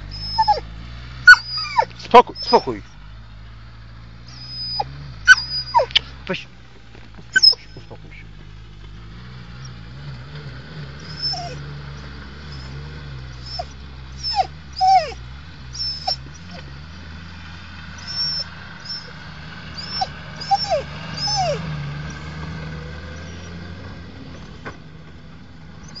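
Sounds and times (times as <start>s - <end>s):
dog whining and yipping: 0.0s - 3.0s, 4.3s - 6.2s, 7.2s - 8.2s, 11.0s - 16.9s, 18.0s - 22.3s, 23.2s - 23.6s, 24.3s - 24.9s, 25.8s - 26.0s
car engine droning: 0.0s - 26.0s.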